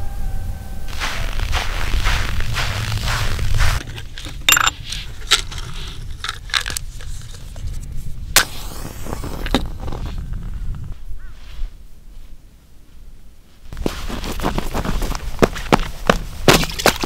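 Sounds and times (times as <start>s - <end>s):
short rush of noise: 0.0s - 3.8s.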